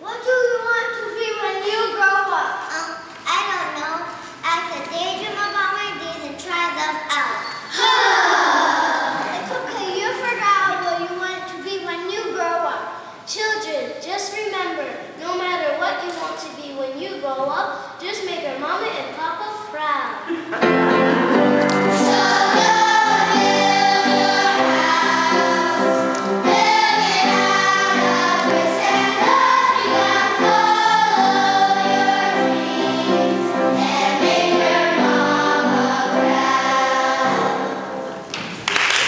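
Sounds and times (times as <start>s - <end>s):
children's choir singing: 7.7s - 9.8s, 20.7s - 38.3s.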